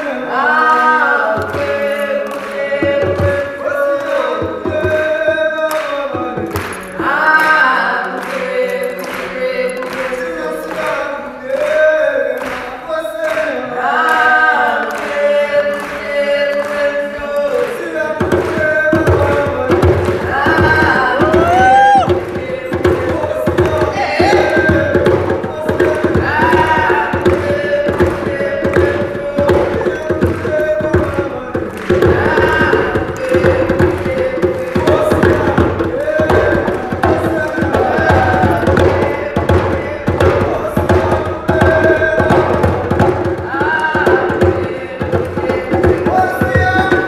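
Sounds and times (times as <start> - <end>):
group singing: 0.0 - 47.0
hand drums: 1.1 - 8.8, 17.6 - 47.0
steady sharp beat: 17.6 - 47.0.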